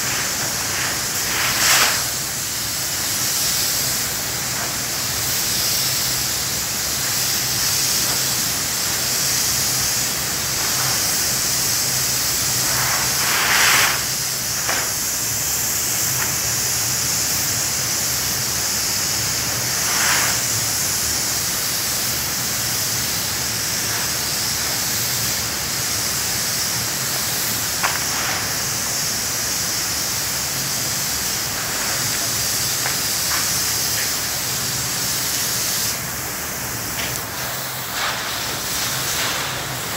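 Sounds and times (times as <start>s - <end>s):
spray gun hissing: 0.0s - 39.9s.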